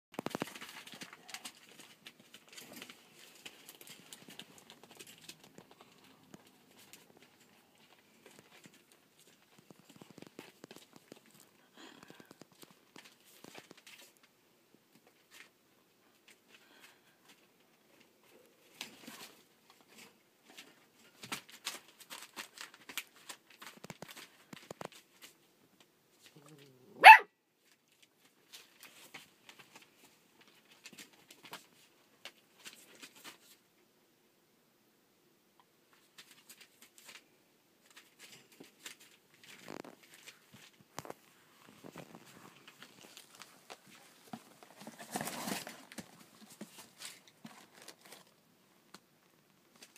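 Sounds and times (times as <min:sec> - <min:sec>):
paper crinkling: 0:00.2 - 0:14.3, 0:18.6 - 0:25.5, 0:27.6 - 0:33.6, 0:35.9 - 0:48.4, 0:49.6 - 0:49.9
paws rustling newspaper: 0:00.2 - 0:14.3, 0:18.7 - 0:25.4, 0:37.8 - 0:48.3.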